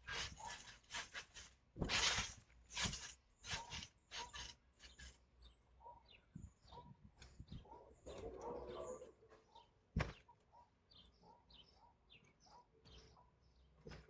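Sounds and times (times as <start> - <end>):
trampoline springs creaking: 0.0 - 5.3.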